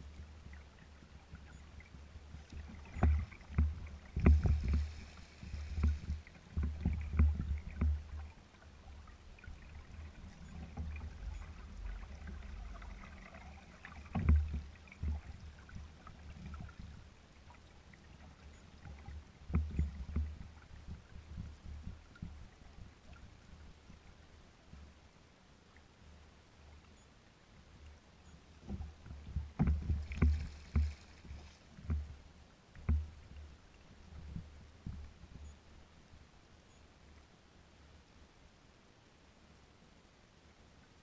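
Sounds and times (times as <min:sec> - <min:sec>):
waves lapping against kayak hull: 0:00.0 - 0:24.2, 0:28.6 - 0:35.5.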